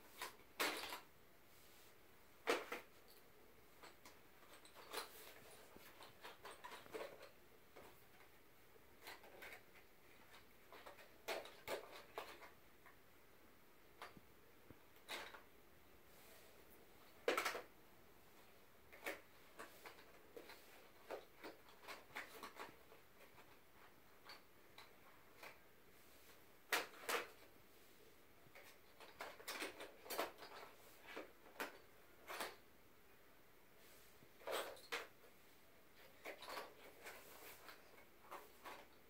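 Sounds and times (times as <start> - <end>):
pencils rattling in cardboard box: 3.8 - 8.4, 9.0 - 12.6, 18.9 - 25.6, 35.9 - 39.0.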